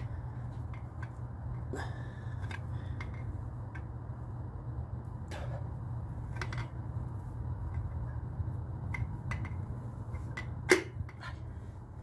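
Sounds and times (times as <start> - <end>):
steady low hum: 0.0 - 12.0
metal clicks and knocks: 8.8 - 11.2.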